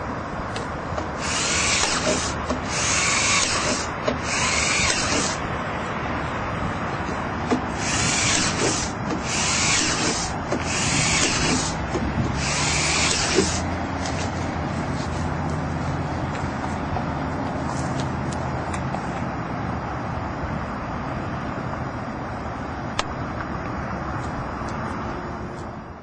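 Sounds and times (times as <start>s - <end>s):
steady low rumble: 0.0s - 26.0s
cordless drill bursts: 1.2s - 5.4s, 7.7s - 11.8s, 12.4s - 13.7s.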